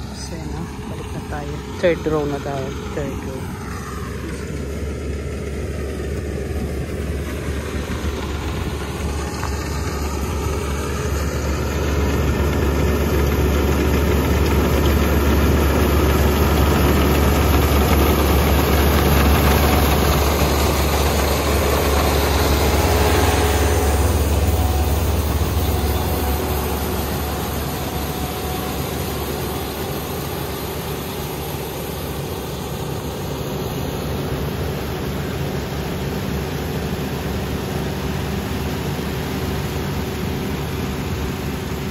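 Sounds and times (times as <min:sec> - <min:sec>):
combine harvester engine hum: 0:00.0 - 0:41.9
machine noise: 0:00.0 - 0:41.9.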